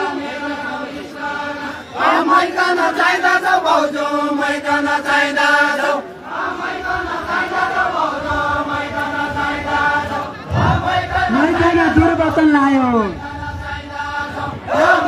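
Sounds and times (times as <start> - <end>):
voices chanting a song: 0.0 - 15.0.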